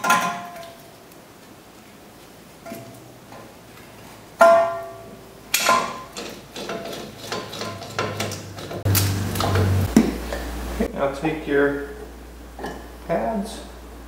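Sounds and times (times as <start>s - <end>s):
metal tools clanking: 4.4s - 9.8s.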